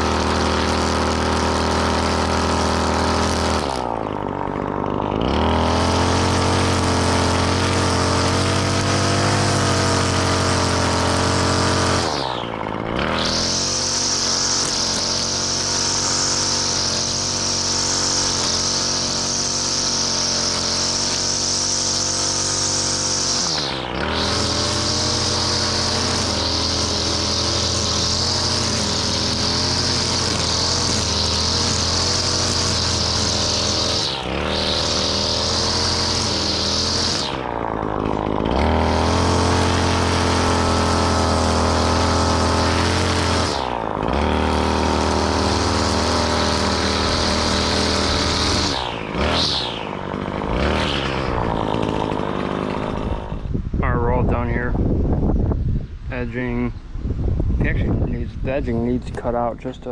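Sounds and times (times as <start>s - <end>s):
lawn mower engine running: 0.0s - 59.9s.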